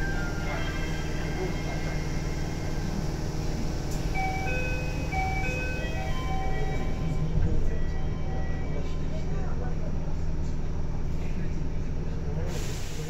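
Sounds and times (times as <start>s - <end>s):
train car humming: 0.0s - 13.0s
electronic chime melody: 4.1s - 8.8s.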